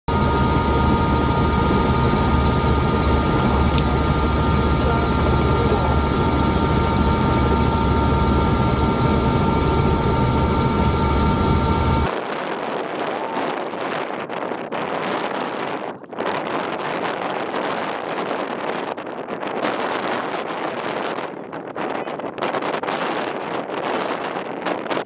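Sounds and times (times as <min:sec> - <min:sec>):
helicopter rotor drone: 0:00.1 - 0:12.1
turbine high whine: 0:00.1 - 0:14.2.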